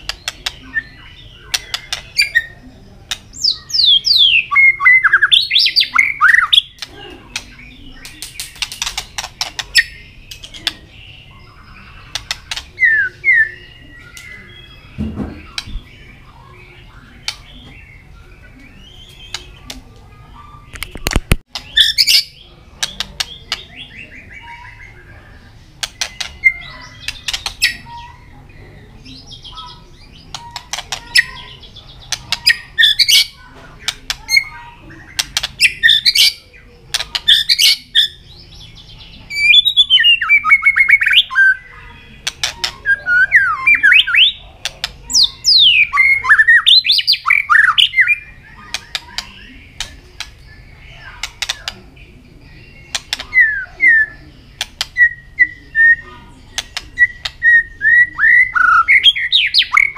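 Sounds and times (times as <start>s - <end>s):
bird clicking and squawking: 0.0s - 0.7s, 6.3s - 10.9s, 12.0s - 12.8s, 22.8s - 23.7s, 25.8s - 27.9s, 30.2s - 37.8s, 42.2s - 42.9s, 44.5s - 45.6s, 48.6s - 50.4s, 51.1s - 51.9s, 52.9s - 53.5s, 54.5s - 55.1s, 56.5s - 57.4s
bird song whistles: 39.3s - 41.8s, 55.0s - 56.1s, 57.0s - 59.9s.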